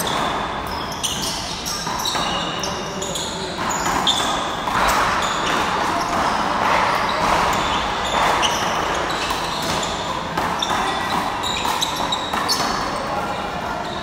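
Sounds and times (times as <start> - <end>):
sneakers squeaking on court: 0.0 - 14.0
handball slapping wall and floor: 3.5 - 13.0.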